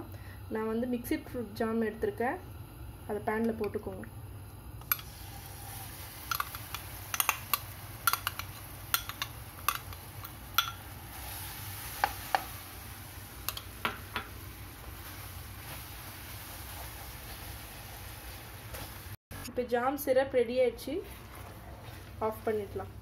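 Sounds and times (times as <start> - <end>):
spoon clicking on paper cup: 6.3 - 10.8.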